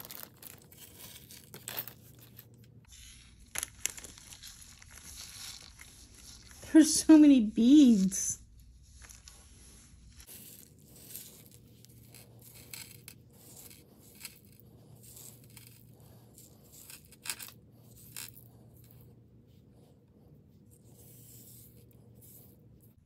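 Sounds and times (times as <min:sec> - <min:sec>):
beads clicking and clinking: 0:10.2 - 0:19.0.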